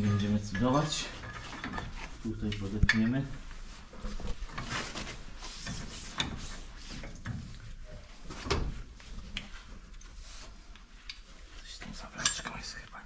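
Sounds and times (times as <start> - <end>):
metal clinks and knocks: 0.0 - 3.3.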